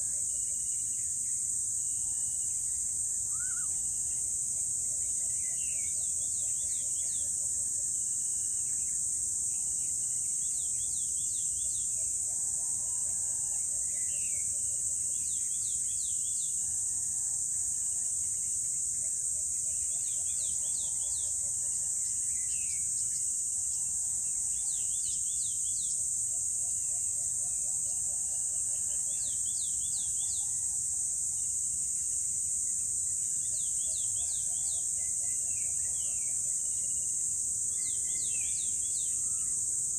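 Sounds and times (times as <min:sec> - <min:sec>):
high-pitched insect drone: 0:02.0 - 0:04.8.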